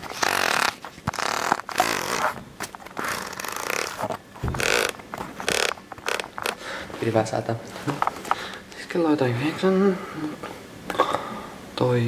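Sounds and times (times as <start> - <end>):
camera handling rustling: 0.6 - 6.6.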